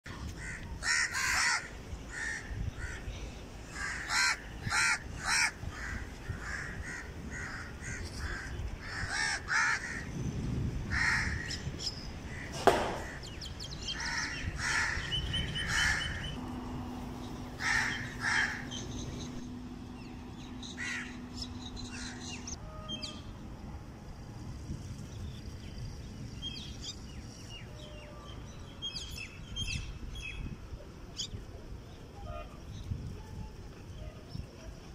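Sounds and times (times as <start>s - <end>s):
crows cawing: 0.4s - 3.0s, 3.7s - 10.1s, 10.9s - 11.5s, 14.0s - 15.1s, 17.6s - 18.8s, 20.8s - 21.2s
steady low hum: 1.6s - 27.8s
sharp knock: 12.6s - 13.2s.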